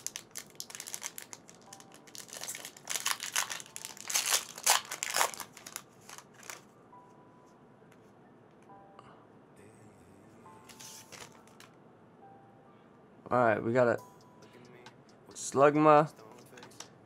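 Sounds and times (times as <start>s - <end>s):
foil wrapper tearing and crinkling: 0.0s - 6.6s, 11.1s - 11.7s.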